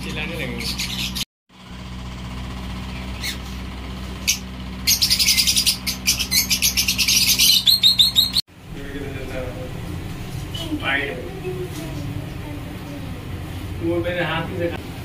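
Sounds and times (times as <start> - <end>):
birds chirping: 0.0 - 1.3, 2.5 - 8.4
steady low hum: 0.0 - 15.0.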